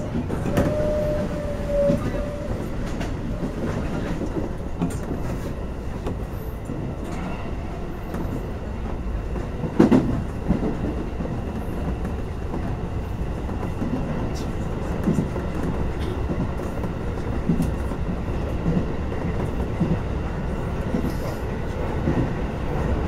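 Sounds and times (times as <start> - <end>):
train wheels rumbling on rail: 0.0 - 23.0
clacks over rail joints: 8.0 - 12.8.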